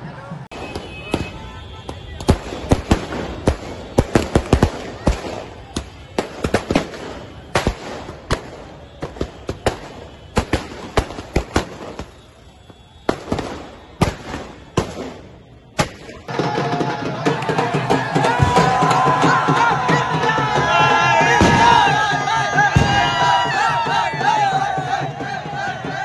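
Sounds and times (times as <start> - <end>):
firecracker crackling: 0.5 - 19.9
firecrackers banging: 0.5 - 26.0.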